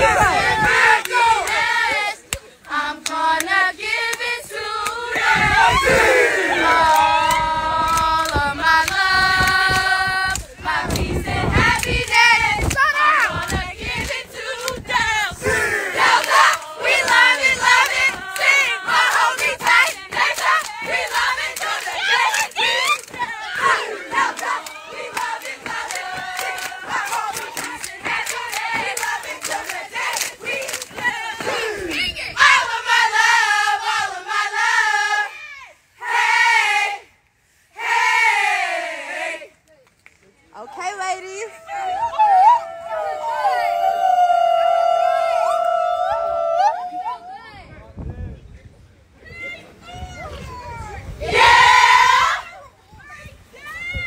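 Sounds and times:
women calling and cheering: 16.0s - 28.8s, 40.5s - 47.6s
claps and stomps: 16.0s - 32.0s
women shouting: 40.7s - 47.5s.

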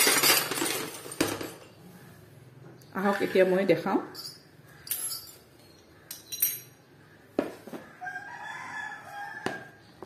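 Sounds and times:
metal nozzles clinking on table: 4.1s - 6.8s.

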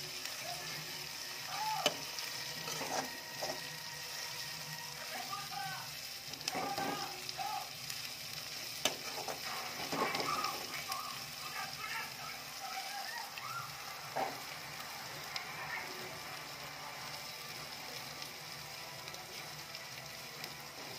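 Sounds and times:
onions sizzling in oil: 0.0s - 20.9s
metal spatula scraping pan: 1.8s - 3.7s, 8.8s - 10.6s
spatula clacking on metal: 8.8s - 10.6s.

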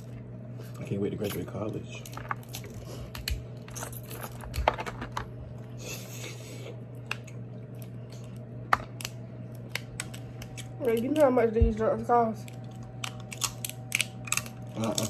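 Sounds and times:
steady low hum: 0.0s - 15.0s
crab shells cracking: 7.0s - 11.3s, 12.4s - 15.0s.

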